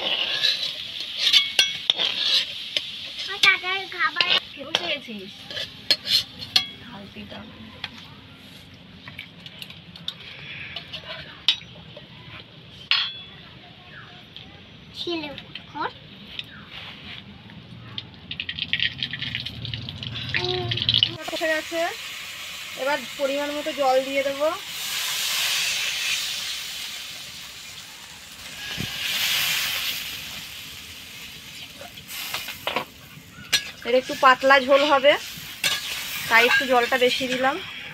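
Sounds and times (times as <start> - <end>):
water sizzling in hot oil: 0.0 - 6.4, 18.2 - 37.9
metal spatula scraping and clinking: 0.0 - 6.8, 31.8 - 37.9.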